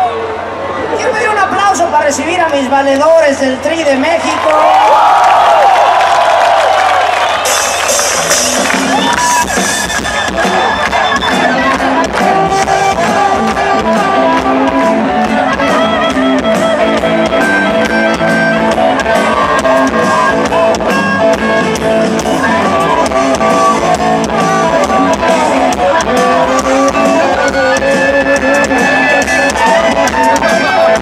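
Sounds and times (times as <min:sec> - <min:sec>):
live rock band playing: 0:07.0 - 0:31.0
harmonica lead: 0:07.4 - 0:31.0.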